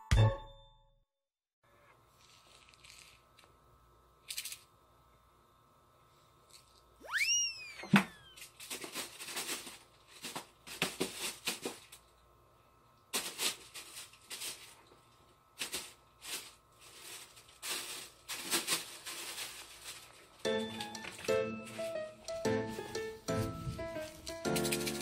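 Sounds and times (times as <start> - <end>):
plastic bag rustling: 2.2 - 3.4, 8.2 - 12.1, 13.1 - 22.2.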